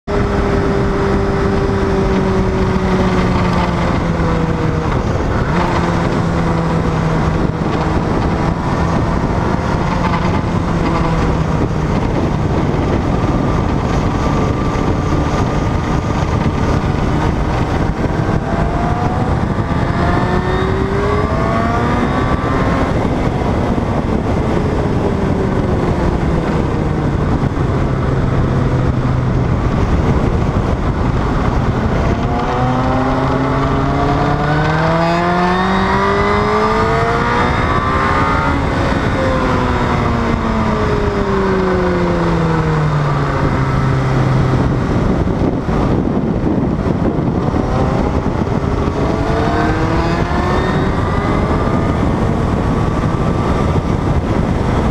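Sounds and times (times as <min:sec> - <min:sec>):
motorcycle engine: 0:00.0 - 0:54.9
wind rush: 0:00.0 - 0:54.9.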